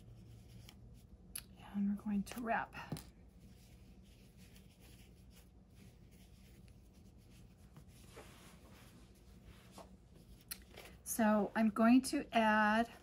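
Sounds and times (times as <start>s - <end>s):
steady low hum: 0.0s - 13.0s
fabric rustling and rubbing: 3.2s - 11.9s.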